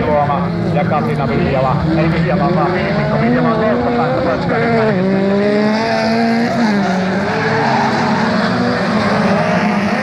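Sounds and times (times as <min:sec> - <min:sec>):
race car engines revving: 0:00.0 - 0:10.0.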